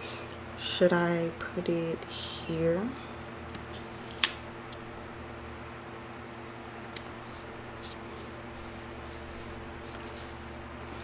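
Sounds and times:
steady low hum: 0:00.0 - 0:11.0
paper handling: 0:06.8 - 0:11.0.

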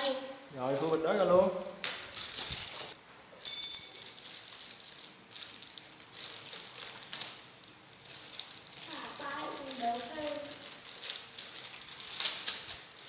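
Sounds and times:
plastic bag crinkling and rustling: 0:01.8 - 0:03.0, 0:04.2 - 0:13.0.

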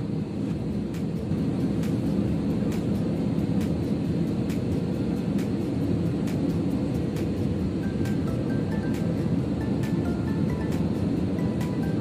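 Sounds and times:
jet engines roaring in cabin: 0:00.0 - 0:12.0.

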